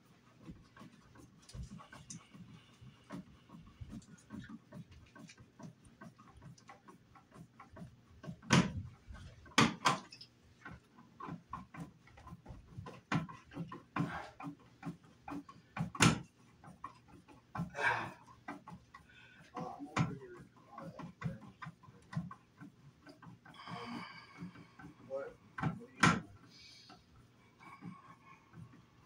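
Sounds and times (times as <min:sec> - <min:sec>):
sharp knocks: 0:08.4 - 0:08.9, 0:09.5 - 0:10.1, 0:15.8 - 0:16.3.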